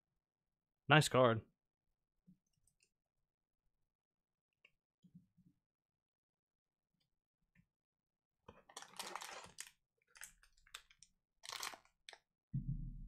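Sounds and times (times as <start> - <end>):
foil wrapper crinkling and tearing: 8.7 - 12.2.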